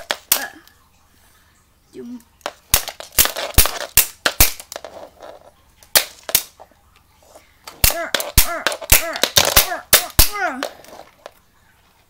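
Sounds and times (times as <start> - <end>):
hard objects clicking on wood floor: 2.4 - 6.5.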